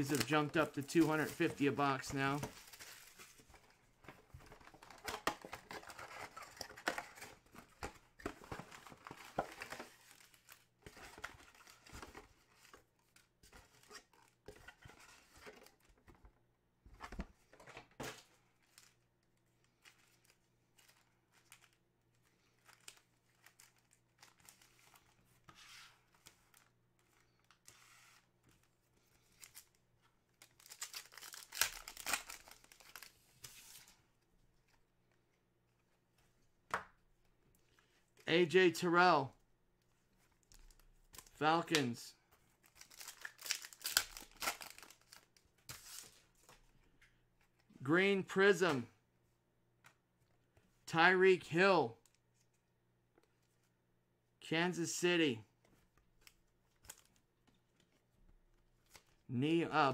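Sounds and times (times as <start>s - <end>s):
foil packs crinkling and tearing: 30.6s - 33.1s, 42.8s - 45.2s.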